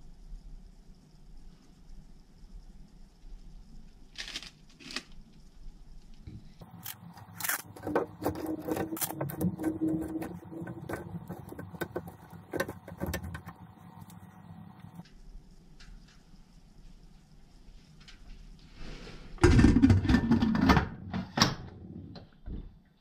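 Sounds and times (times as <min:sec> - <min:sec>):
fish knocking and scraping: 0:07.2 - 0:15.0.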